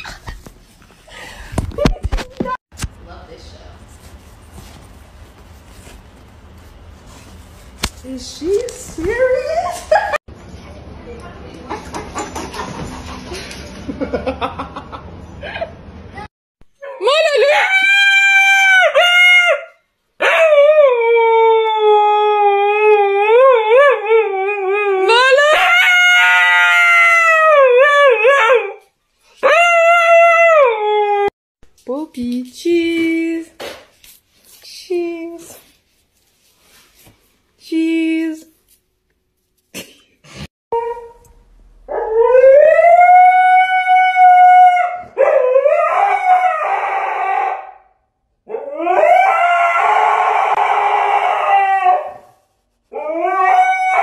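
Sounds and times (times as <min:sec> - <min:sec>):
dog howling: 0:48.5 - 0:52.3, 0:52.9 - 0:54.0.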